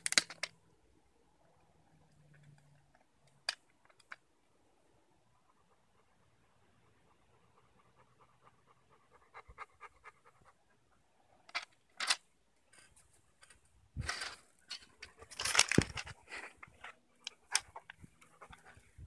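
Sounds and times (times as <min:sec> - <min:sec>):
dog panting: 0:05.4 - 0:11.2
rustling: 0:11.5 - 0:19.0.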